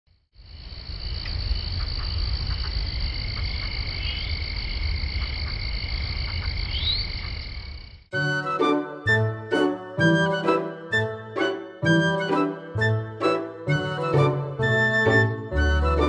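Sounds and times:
frogs and insects trilling: 0.4 - 8.1
instrumental music: 8.1 - 16.0.

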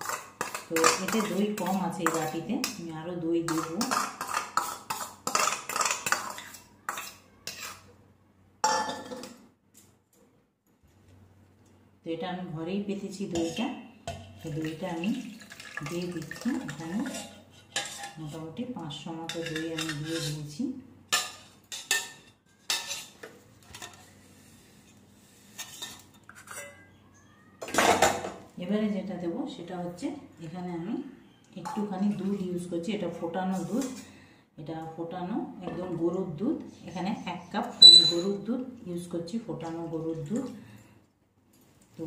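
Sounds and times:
spoon clinking against bowl: 37.8 - 38.3.

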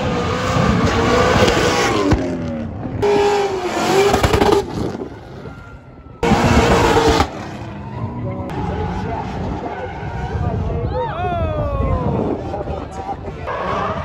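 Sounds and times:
car engines revving high: 0.0 - 11.0, 11.6 - 14.0.

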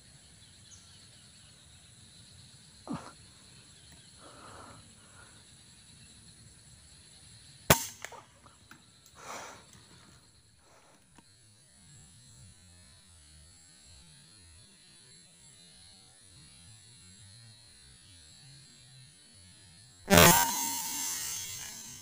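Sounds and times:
air rifle shot: 7.7 - 8.2, 20.1 - 22.0.

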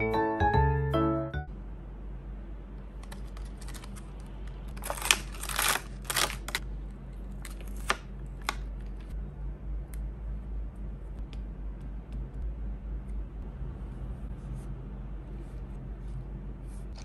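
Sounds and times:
plastic sheet crinkling: 4.7 - 6.6.

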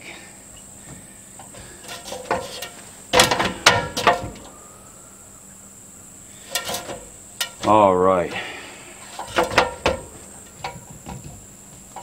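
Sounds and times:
tools clunking and rattling: 0.9 - 4.6, 6.5 - 12.0.

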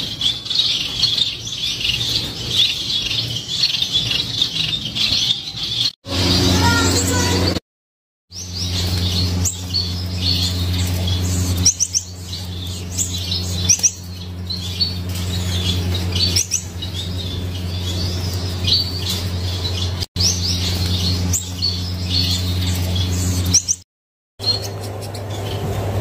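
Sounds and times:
finches chirping and calling: 0.0 - 7.6, 8.3 - 23.8, 24.4 - 26.0
steady low hum: 6.1 - 7.6, 8.3 - 23.8.

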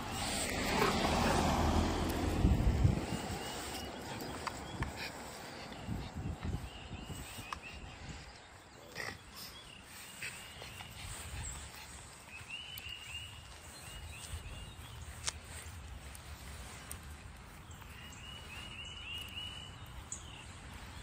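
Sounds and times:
dog snorting and grunting: 8.7 - 9.8.

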